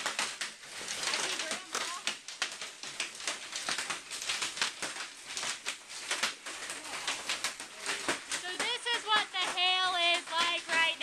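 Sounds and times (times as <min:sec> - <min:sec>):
hail clattering on hard surfaces: 0:00.0 - 0:11.0.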